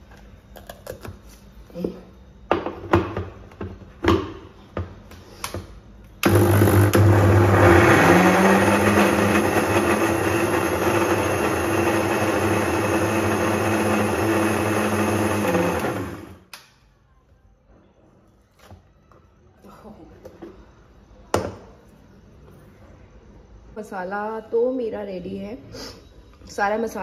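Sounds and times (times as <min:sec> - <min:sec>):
mixer grinder motor humming: 0:06.2 - 0:16.4.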